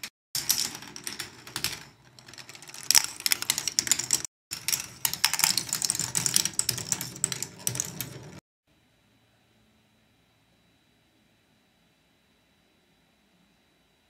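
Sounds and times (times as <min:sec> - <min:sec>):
plastic balls clattering on tracks: 0:00.4 - 0:08.4.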